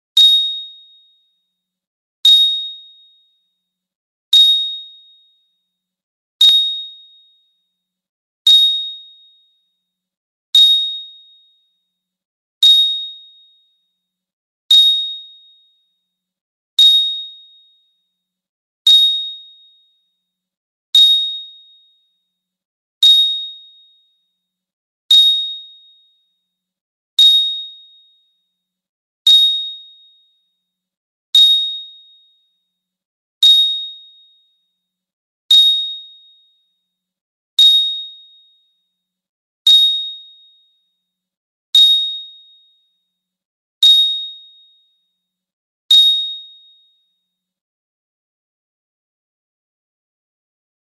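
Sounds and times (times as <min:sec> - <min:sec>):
bright high-pitched ding: 0:45.9 - 0:46.6.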